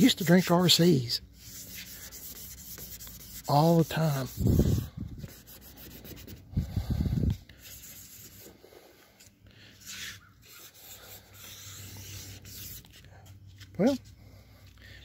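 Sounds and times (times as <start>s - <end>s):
paper towel wiping metal: 0.0s - 6.5s, 9.8s - 12.9s.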